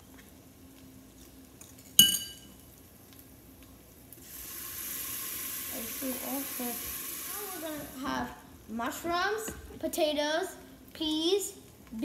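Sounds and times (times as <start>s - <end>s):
sizzling in hot oil: 0.0s - 9.4s
spoon clinking against pot: 2.0s - 2.5s.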